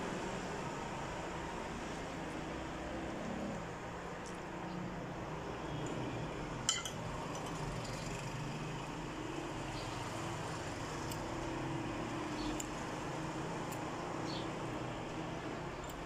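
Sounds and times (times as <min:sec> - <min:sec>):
fork clinking against plate: 0:06.7 - 0:07.0.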